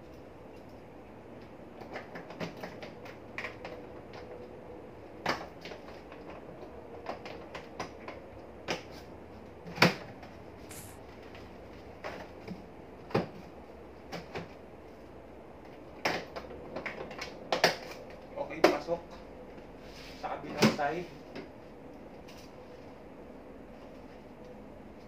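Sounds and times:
rustling: 0:10.7 - 0:11.0.

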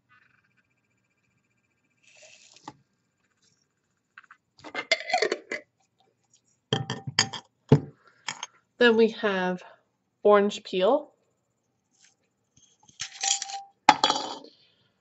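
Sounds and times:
glass jar knocking and clinking: 0:04.7 - 0:05.6, 0:06.8 - 0:08.5, 0:13.0 - 0:14.5.

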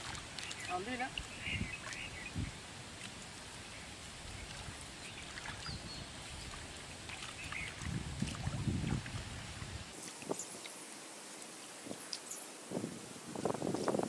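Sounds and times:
soft hiss of water: 0:00.0 - 0:14.0
hands splashing in muddy water: 0:04.4 - 0:10.4.

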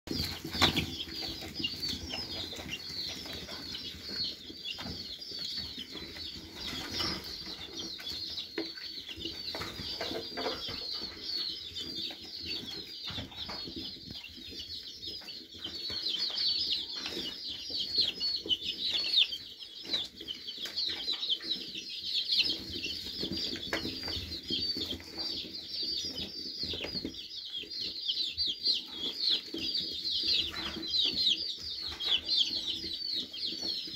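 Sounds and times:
chicks peeping: 0:00.1 - 0:33.9
chicks scuffling: 0:00.1 - 0:33.9.

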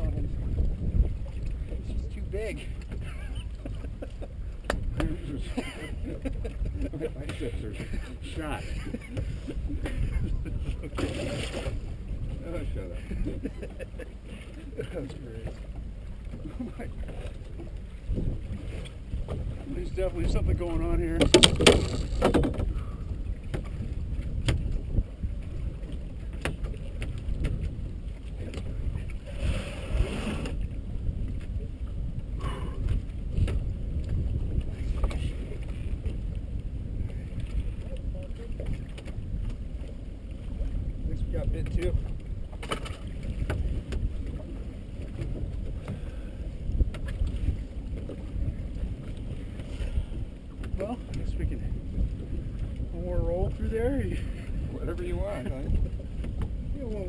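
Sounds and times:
boat engine rumble: 0:00.0 - 0:57.0
wind on microphone: 0:00.0 - 0:57.0
knocks on boat: 0:04.6 - 0:05.2, 0:21.1 - 0:22.8, 0:24.4 - 0:24.8, 0:26.3 - 0:27.7, 0:42.6 - 0:44.1.

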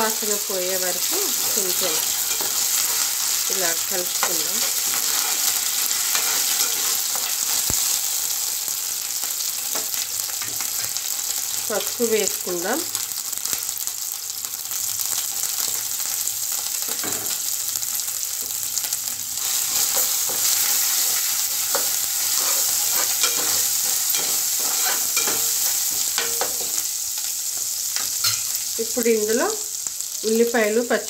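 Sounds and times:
hot oil sizzling in a pot: 0:00.0 - 0:31.0
steel spoon scraping a pot: 0:01.4 - 0:03.3, 0:04.2 - 0:07.4, 0:19.5 - 0:26.8.

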